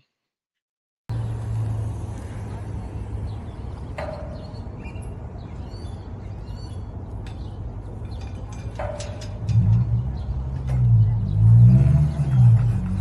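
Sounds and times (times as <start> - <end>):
small birds chirping: 1.2 - 13.0
clips clinking on metal flagpole: 7.1 - 11.1.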